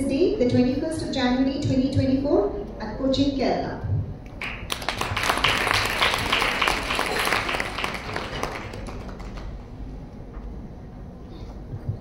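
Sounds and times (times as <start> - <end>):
audience applauding: 4.4 - 9.8.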